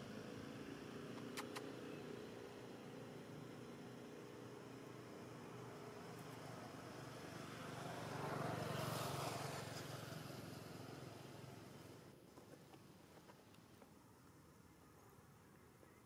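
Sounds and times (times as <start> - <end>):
motor vehicle passing by: 0.0 - 12.1.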